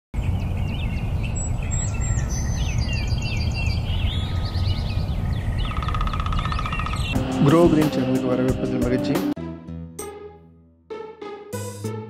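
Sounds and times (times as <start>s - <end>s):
birds chirping: 0.2s - 8.3s.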